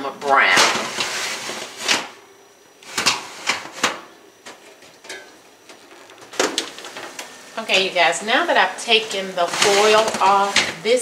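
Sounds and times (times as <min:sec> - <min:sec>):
wire rack and pans clinking: 0:05.0 - 0:06.0.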